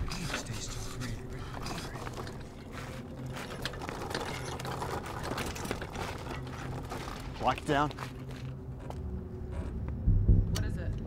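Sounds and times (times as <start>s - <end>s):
stretcher rattling and clicking: 0.0s - 8.5s.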